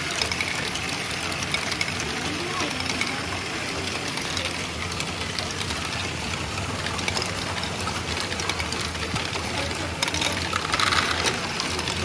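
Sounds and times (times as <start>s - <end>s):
plastic balls clicking and rattling: 0.0s - 12.0s
whir of small motors and gears: 0.0s - 12.0s.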